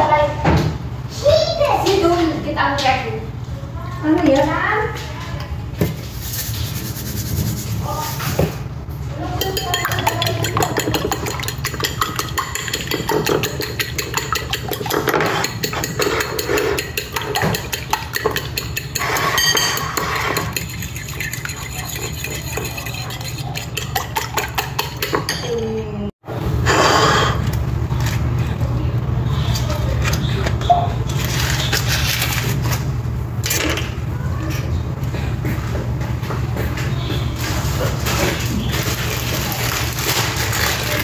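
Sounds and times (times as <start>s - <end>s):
fork clinking against bowl: 9.4s - 25.8s.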